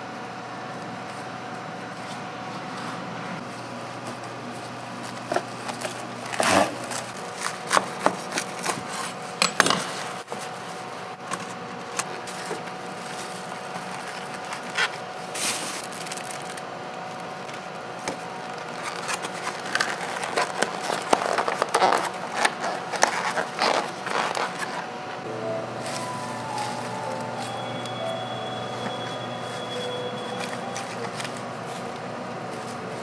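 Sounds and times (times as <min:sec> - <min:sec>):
faint steady hum: 0:23.7 - 0:33.0.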